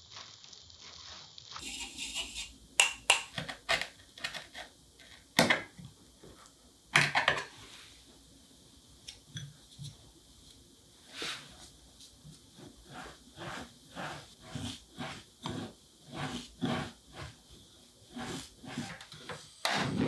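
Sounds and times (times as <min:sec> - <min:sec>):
flour pattering through sieve: 0:00.0 - 0:02.5, 0:09.6 - 0:19.0.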